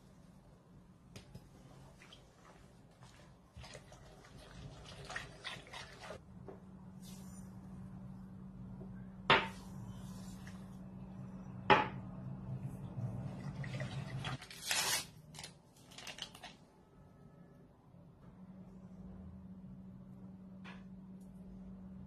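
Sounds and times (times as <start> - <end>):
whisk stirring in a pot: 2.4 - 6.2
low hum: 6.2 - 13.7.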